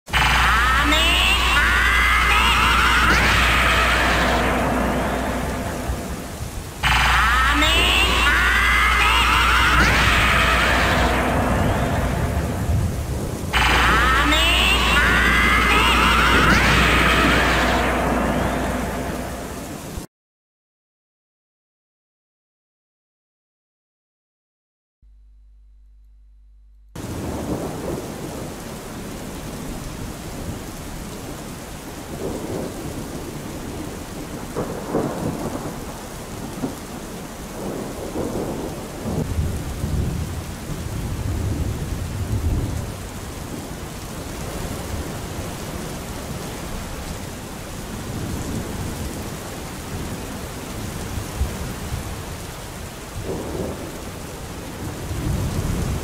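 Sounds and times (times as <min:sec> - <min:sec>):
steady rushing hiss: 0:00.1 - 0:20.0
deep rumbles: 0:00.1 - 0:20.1.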